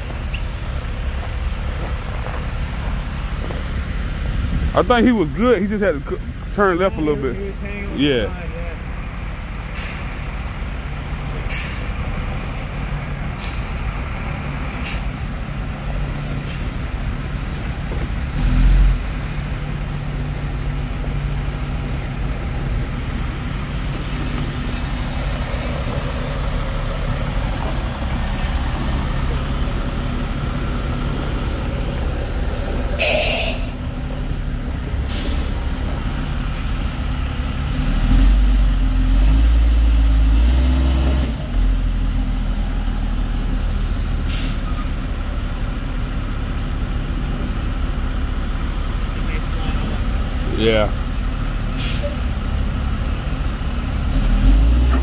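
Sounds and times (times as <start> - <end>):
diesel truck engine: 0.0 - 55.0
air brake hiss: 9.8 - 10.2, 11.5 - 12.0, 32.6 - 33.8, 35.1 - 35.6, 44.3 - 45.0, 51.8 - 52.2.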